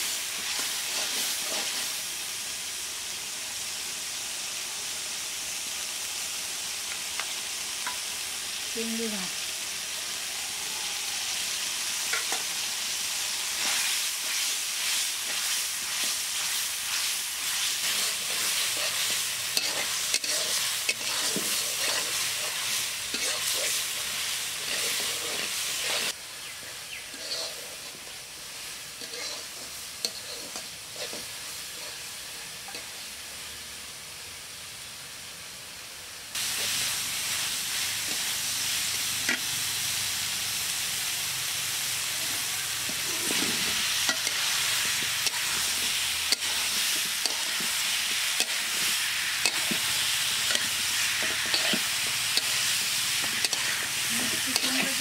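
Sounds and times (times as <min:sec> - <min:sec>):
shrimp sizzling in hot oil: 0:00.0 - 0:55.0
spatula scraping a pan: 0:00.4 - 0:01.9, 0:13.6 - 0:28.2, 0:29.0 - 0:32.1, 0:42.8 - 0:55.0.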